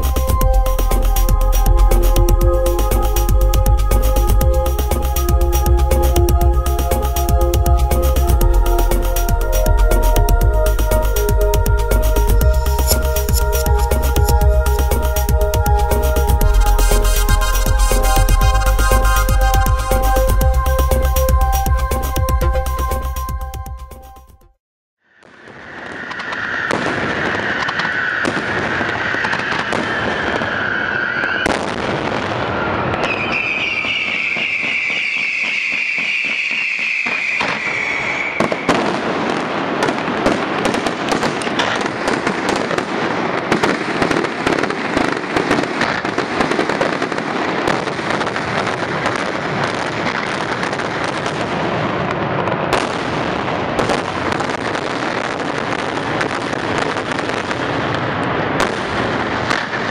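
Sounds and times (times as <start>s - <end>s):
firework whistle: 12.2s - 22.2s, 25.2s - 43.0s
fireworks bangs and crackling: 12.3s - 20.9s, 25.1s - 59.9s.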